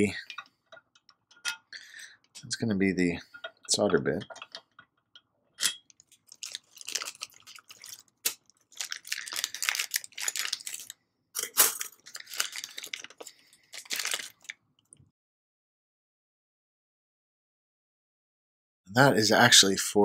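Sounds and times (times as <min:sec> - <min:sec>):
plastic bag crinkling: 0:05.9 - 0:14.6.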